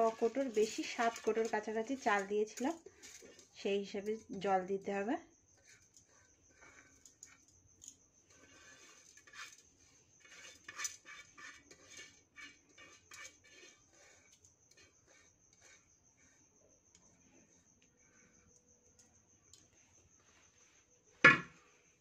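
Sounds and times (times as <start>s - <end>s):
rice grains rustling in pot: 0.0s - 16.4s.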